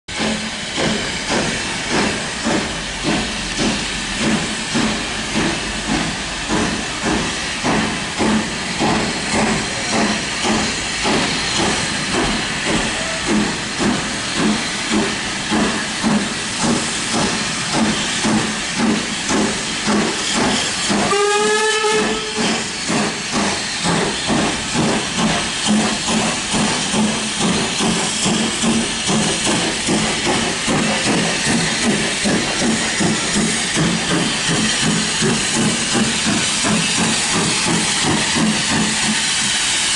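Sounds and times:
steam hissing: 0.1s - 39.9s
steam locomotive exhaust chuffs: 0.1s - 39.9s
steam whistle blast: 21.0s - 22.8s.

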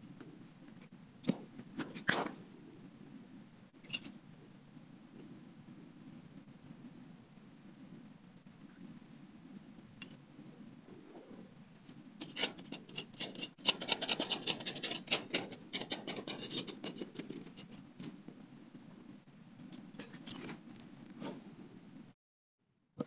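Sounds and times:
machete scraping dry soil: 12.2s - 17.1s.

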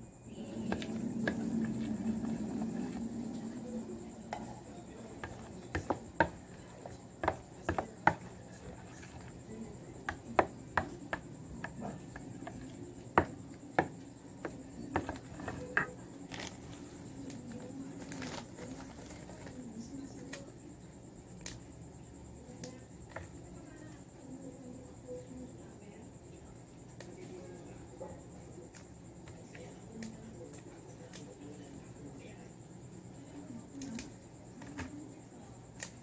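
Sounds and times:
spoon scraping plastic bowl: 0.4s - 19.6s.

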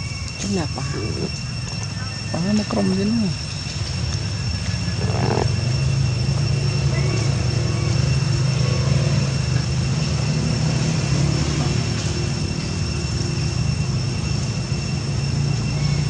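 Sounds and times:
low engine-like drone: 0.0s - 16.0s.

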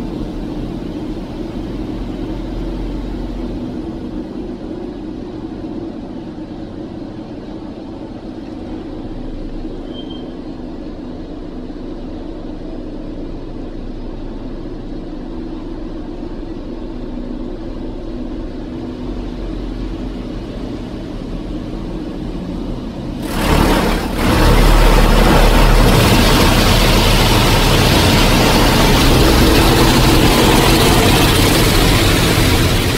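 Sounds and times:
low machinery hum: 0.0s - 32.9s
loud water rush: 23.2s - 32.9s
water spray rushing: 23.2s - 32.9s.

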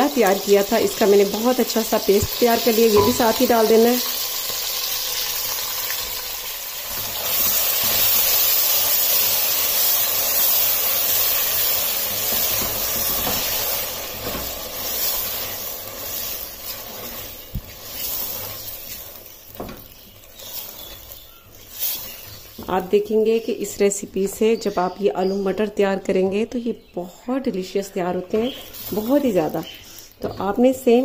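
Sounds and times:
paste sizzling in hot oil: 0.0s - 23.1s, 28.5s - 30.3s
spatula stirring and scraping pot: 6.9s - 22.9s.

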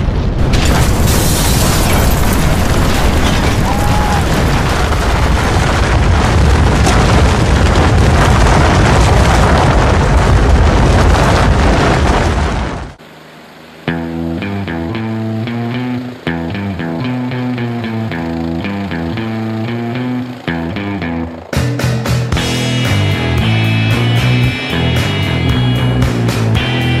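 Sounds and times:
loud explosion blast: 0.0s - 13.0s
rumble of collapsing rock: 0.0s - 13.0s.

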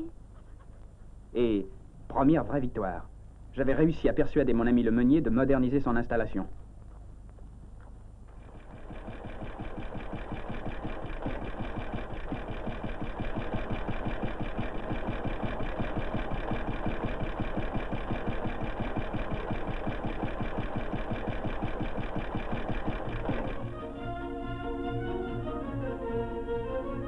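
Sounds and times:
motor-driven grain mill clattering: 7.8s - 23.8s.

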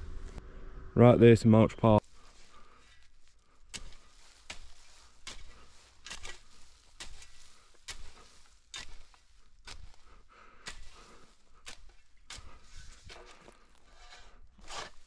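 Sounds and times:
footsteps walking: 2.0s - 14.1s.

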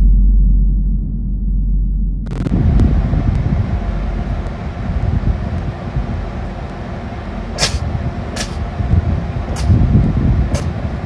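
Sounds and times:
steady low rumble: 0.0s - 11.0s
short sharp hissing: 7.5s - 8.6s.

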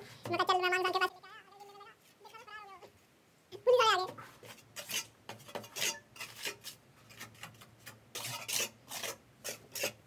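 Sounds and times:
trowel scraping wet mortar: 4.4s - 10.0s.

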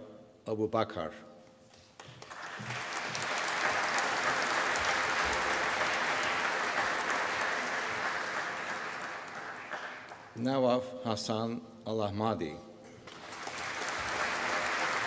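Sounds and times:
audience applauding: 2.0s - 10.4s, 13.0s - 15.0s.

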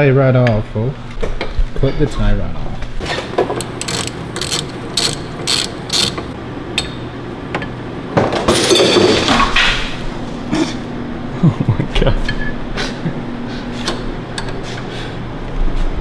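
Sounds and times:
ratchet wrench clicking: 3.5s - 6.4s
rasping: 3.6s - 6.4s.

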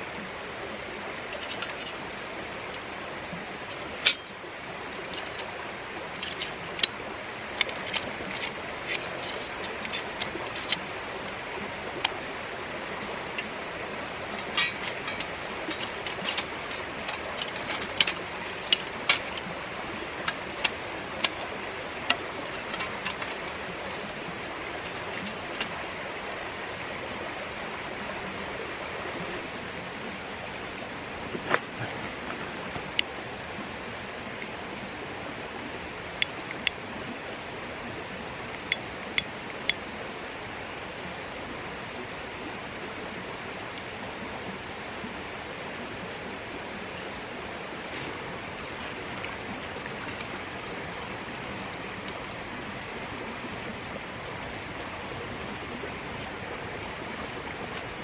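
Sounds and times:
creek rushing: 0.0s - 58.0s
metal panels clicking and clinking: 14.2s - 19.5s, 22.1s - 24.2s.

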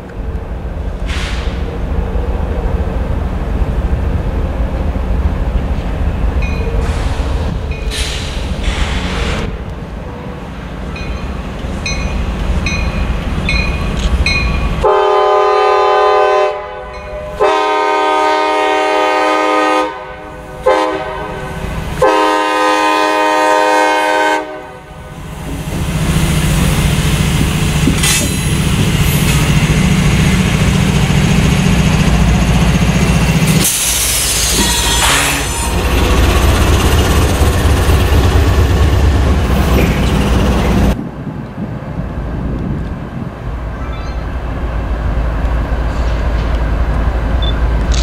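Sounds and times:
diesel locomotives rumbling past: 0.0s - 48.0s
bell dinging: 11.0s - 14.7s
locomotive air horn: 14.8s - 25.1s, 33.6s - 35.8s.

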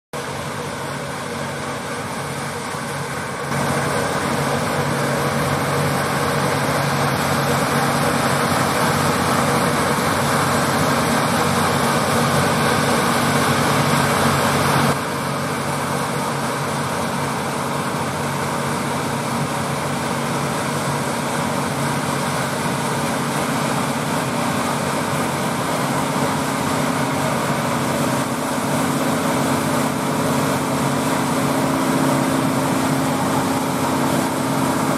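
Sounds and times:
harvester machinery running: 0.2s - 34.9s
tractor diesel engines running: 0.2s - 34.9s.

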